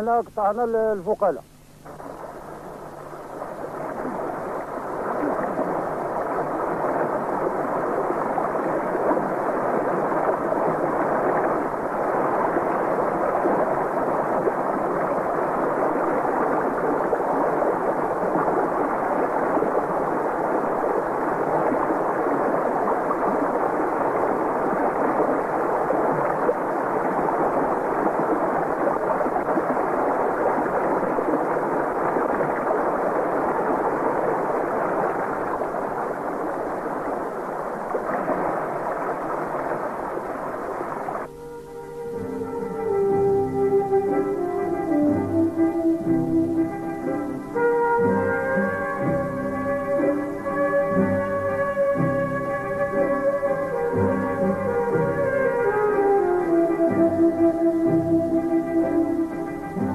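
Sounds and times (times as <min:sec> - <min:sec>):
waterfall and stream rushing: 0:00.0 - 0:59.9.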